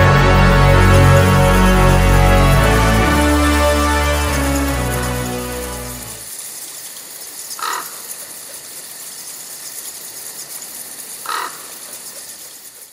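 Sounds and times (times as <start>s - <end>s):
background music: 0.0s - 6.3s
crow cawing: 7.6s - 8.0s, 11.2s - 11.7s.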